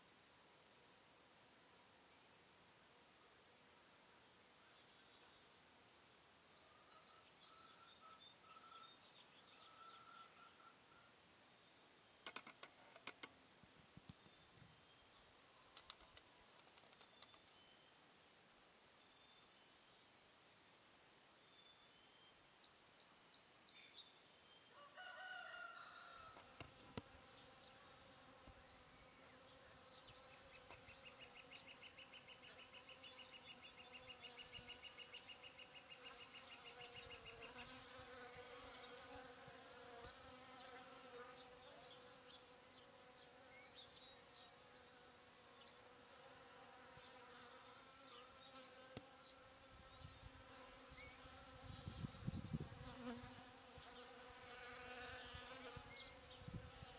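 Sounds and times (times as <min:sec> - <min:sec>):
faint rooster crowing: 0:06.6 - 0:11.2, 0:24.7 - 0:26.6.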